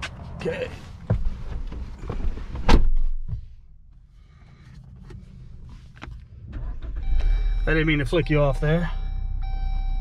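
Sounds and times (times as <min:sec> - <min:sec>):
loud thuds in car cab: 0:01.0 - 0:03.6
engine starting rumble: 0:06.4 - 0:07.7.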